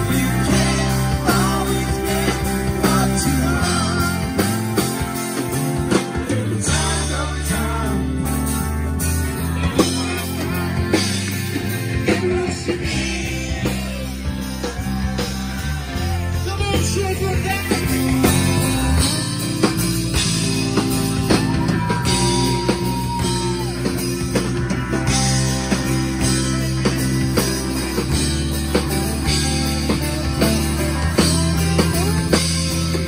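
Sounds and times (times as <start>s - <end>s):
person singing: 0.0s - 5.2s, 5.8s - 8.6s
live rock band playing: 0.0s - 33.0s.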